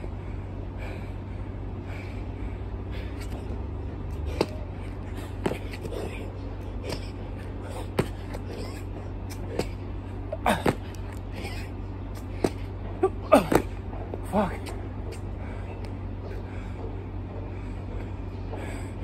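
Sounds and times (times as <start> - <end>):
low background hum: 0.0 - 19.0
hands and sneakers slapping asphalt: 3.0 - 9.8, 10.4 - 16.0.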